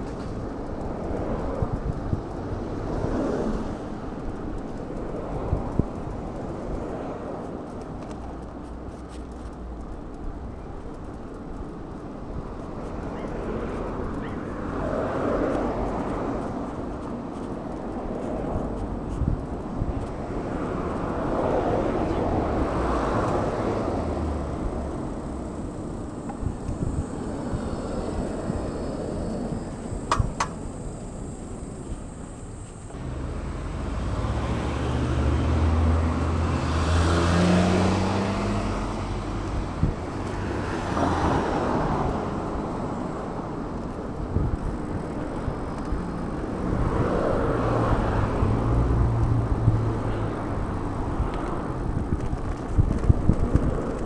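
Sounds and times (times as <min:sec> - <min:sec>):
steady low rumble: 0:00.0 - 0:34.0
cars passing close by: 0:00.0 - 0:54.0.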